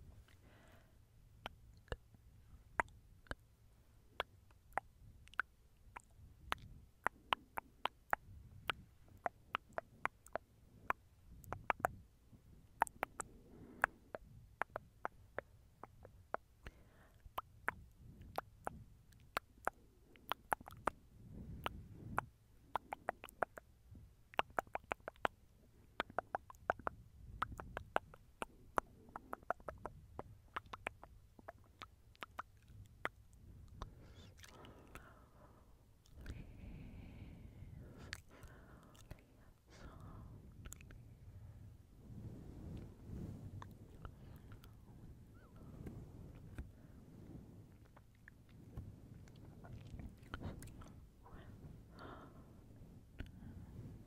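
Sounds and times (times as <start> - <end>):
faint low rumble: 0.0 - 54.0
wet mouth clicks and smacks: 2.8 - 3.4, 4.2 - 12.0, 12.8 - 21.0, 21.6 - 23.7, 24.3 - 25.4, 26.0 - 35.2, 36.0 - 37.1, 37.9 - 41.0, 47.7 - 51.4, 53.2 - 53.5.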